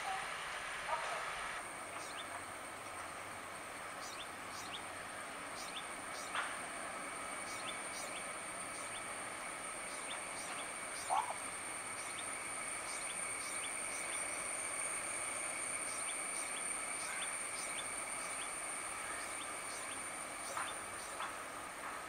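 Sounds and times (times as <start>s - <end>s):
distant freight train: 0.0s - 22.0s
high insect drone: 1.6s - 22.0s
bird chirps: 1.9s - 2.4s, 4.0s - 4.9s, 5.5s - 6.5s, 7.4s - 9.1s, 9.8s - 11.4s, 12.0s - 14.5s, 15.8s - 21.4s.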